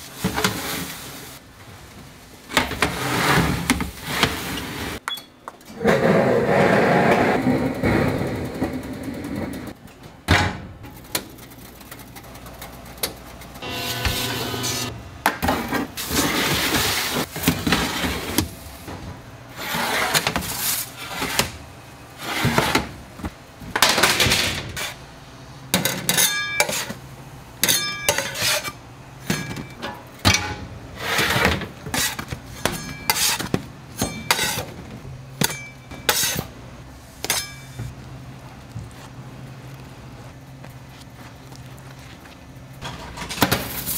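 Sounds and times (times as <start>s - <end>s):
utensils and pans clattering: 25.7s - 27.0s, 27.6s - 34.8s, 35.4s - 36.5s, 37.2s - 37.9s.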